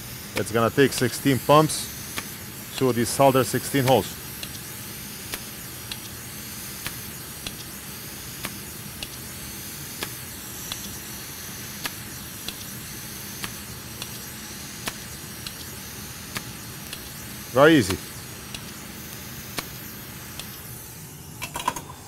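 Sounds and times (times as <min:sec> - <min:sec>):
hot air station hissing: 0:00.0 - 0:22.0
solder sucker clicking: 0:11.8 - 0:12.7, 0:13.4 - 0:17.2.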